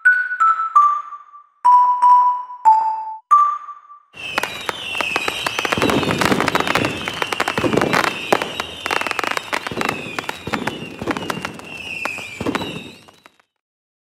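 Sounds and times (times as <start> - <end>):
firework whistle sliding down: 4.2 - 13.4
firework bangs and crackles: 4.2 - 13.6.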